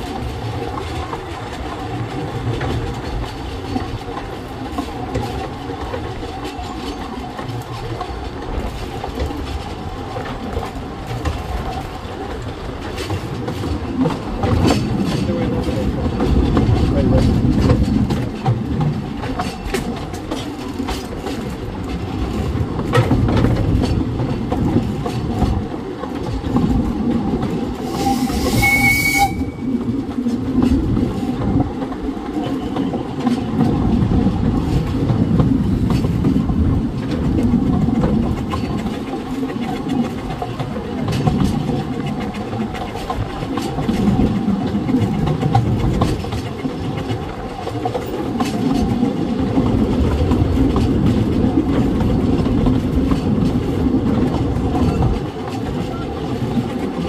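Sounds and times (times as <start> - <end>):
train coach rumbling: 0.0 - 57.0
wheels clicking over rail joints: 0.0 - 57.0
rush of steam: 27.6 - 30.0
steam whistle: 27.8 - 29.8.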